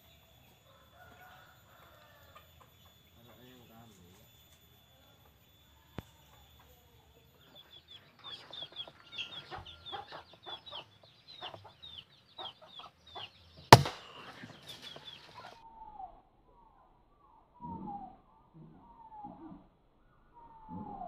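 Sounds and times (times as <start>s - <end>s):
air rifle shot: 13.7s - 15.0s
high downward-sliding animal calls: 13.8s - 21.0s
lower descending animal calls: 15.9s - 21.0s.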